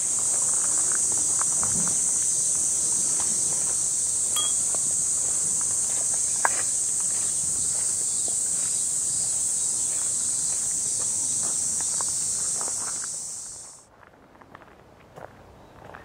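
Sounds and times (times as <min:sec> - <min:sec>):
footsteps on gravel: 0:00.0 - 0:02.0, 0:03.0 - 0:16.0
insects droning: 0:00.0 - 0:13.8
glass wind chime ringing: 0:04.4 - 0:04.7.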